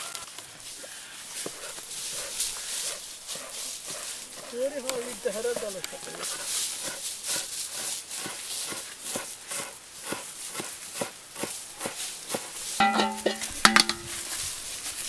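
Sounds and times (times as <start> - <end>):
knife chopping herbs on wooden board: 3.3 - 14.2.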